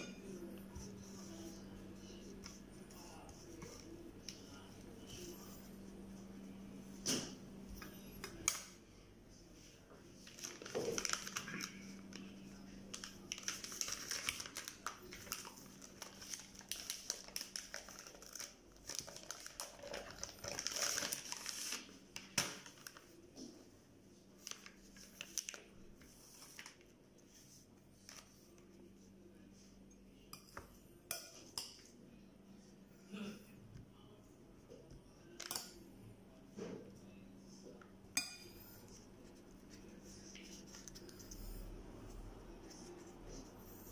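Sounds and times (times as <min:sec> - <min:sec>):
plastic crinkling and rustling: 0:10.2 - 0:23.4, 0:24.3 - 0:28.6.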